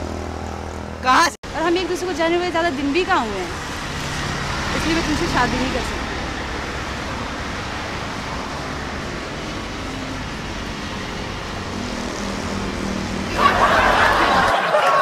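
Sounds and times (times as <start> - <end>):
cars passing on busy road: 0.0 - 15.0.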